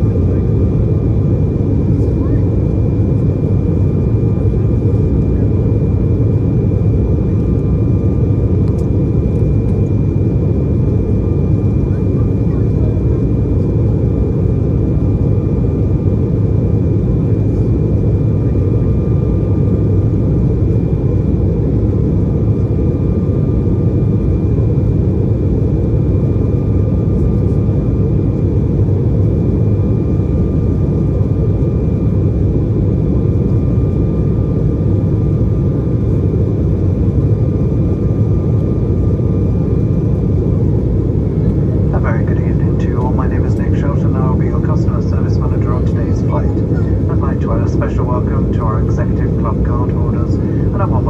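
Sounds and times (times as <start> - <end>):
airplane cabin engine rumble: 0.0 - 51.0
thin steady whine: 37.3 - 51.0.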